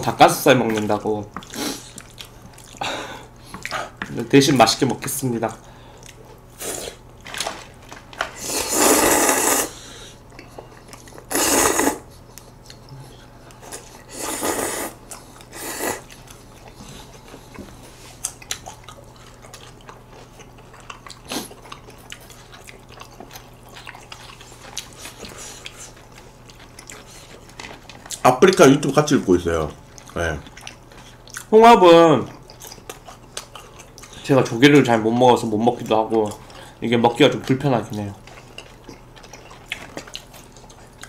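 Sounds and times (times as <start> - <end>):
chewing: 0.6 - 4.2, 5.9 - 31.5, 32.2 - 41.0
noodles slurped: 8.4 - 9.8, 11.2 - 12.1, 13.7 - 16.2.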